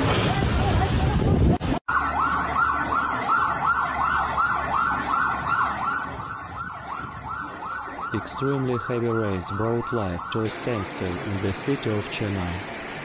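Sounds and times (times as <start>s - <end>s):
siren yelping: 1.9s - 11.3s.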